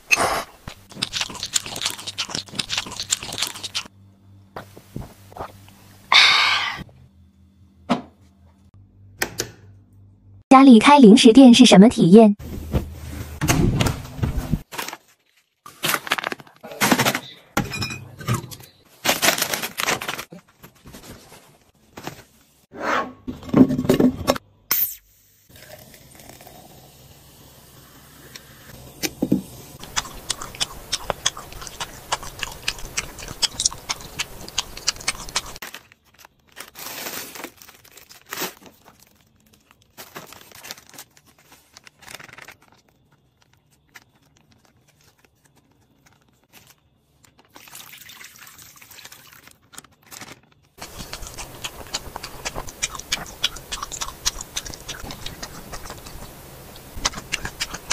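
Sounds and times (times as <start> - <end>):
plastic packet rustling: 14.6 - 16.6, 18.9 - 22.2, 35.5 - 52.7
fizzy drink poured over ice: 47.6 - 49.5.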